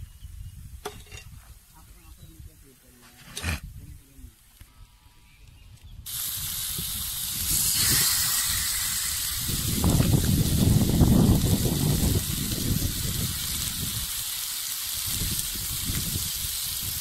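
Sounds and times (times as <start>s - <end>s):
fish sizzling on a griddle: 6.1s - 17.0s.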